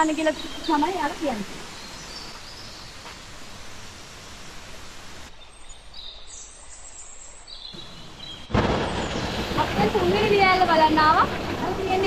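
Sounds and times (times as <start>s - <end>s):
rushing hiss: 0.5s - 5.3s.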